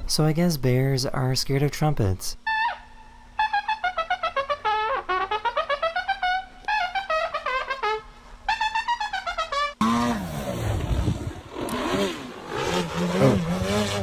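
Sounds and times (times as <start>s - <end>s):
trumpet playing short notes: 2.5s - 10.0s
broad rushing noise: 9.8s - 14.0s
model airplane motor: 9.8s - 14.0s.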